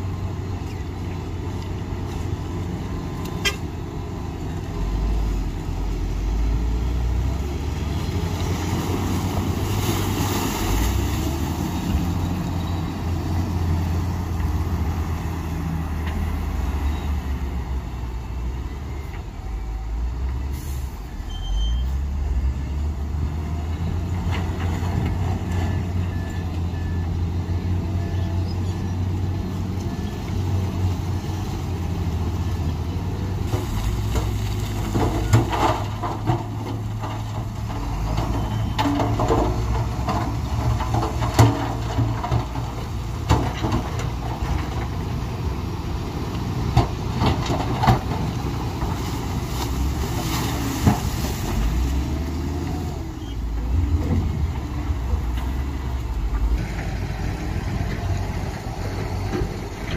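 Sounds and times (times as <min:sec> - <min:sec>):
heavy diesel engines under load: 0:00.0 - 0:59.9.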